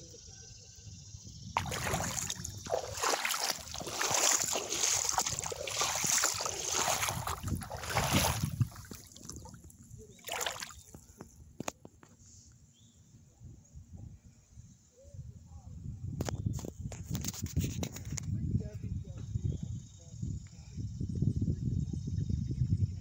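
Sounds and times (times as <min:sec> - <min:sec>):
water splashing around wading feet: 0:01.6 - 0:11.0.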